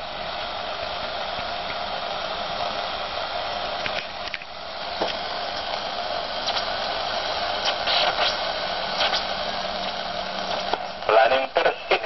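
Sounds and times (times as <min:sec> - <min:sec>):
radio static hiss: 0:00.0 - 0:12.0.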